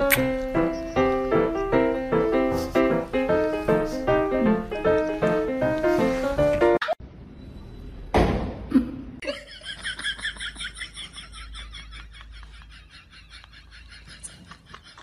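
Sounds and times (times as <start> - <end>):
person giggling: 8.7 - 15.0.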